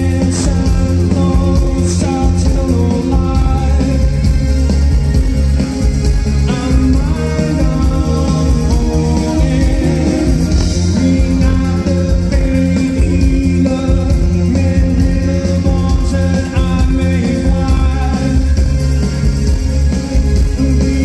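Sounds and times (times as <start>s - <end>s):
lead vocal singing: 0.0s - 4.3s, 6.4s - 18.8s, 20.5s - 21.0s
bass-heavy guitar: 0.0s - 21.0s
drums: 0.0s - 21.0s
indie rock band playing live: 0.0s - 21.0s
keyboard: 0.0s - 21.0s.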